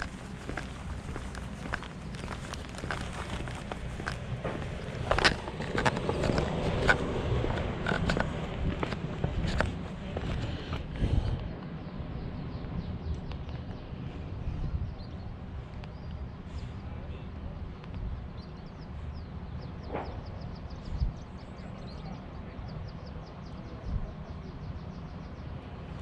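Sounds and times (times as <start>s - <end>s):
footsteps on stone paving: 0.0s - 11.4s
low rumble of microphone movement: 0.0s - 22.0s.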